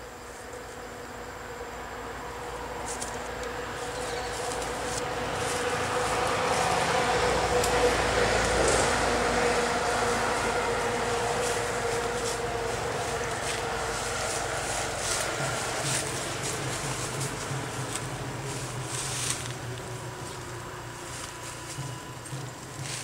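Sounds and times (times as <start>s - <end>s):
road noise: 0.0s - 23.0s
passing vehicle engine: 0.8s - 23.0s.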